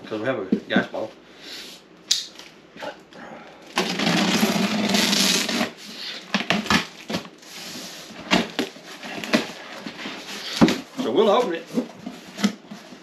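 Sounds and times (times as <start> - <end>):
packing tape ripping: 3.7 - 7.3
cardboard flaps knocking and rustling: 8.2 - 13.0.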